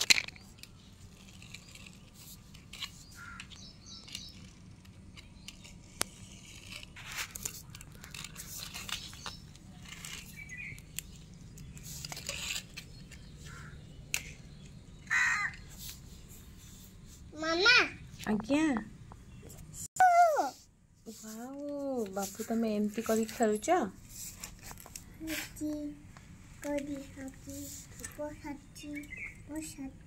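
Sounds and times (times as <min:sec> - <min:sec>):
plastic toy vehicles clicking: 0:00.0 - 0:13.4, 0:14.0 - 0:14.8.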